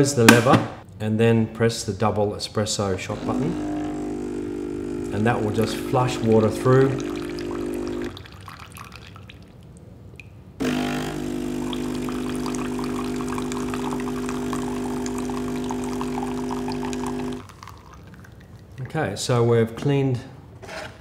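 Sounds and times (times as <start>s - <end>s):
coffee machine pump humming: 3.0s - 8.9s, 10.6s - 18.0s
water splashing into jug: 5.3s - 9.8s, 10.6s - 18.9s.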